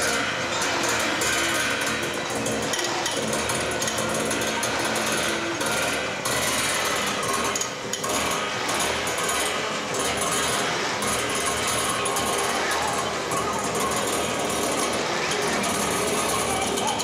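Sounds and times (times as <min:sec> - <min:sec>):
harsh rattling noise music: 0:00.0 - 0:17.0.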